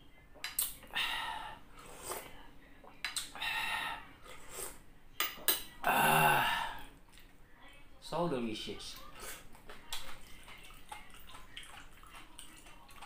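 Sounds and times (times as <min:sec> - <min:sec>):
slurping broth from spoon: 0:01.4 - 0:02.4, 0:04.2 - 0:04.8.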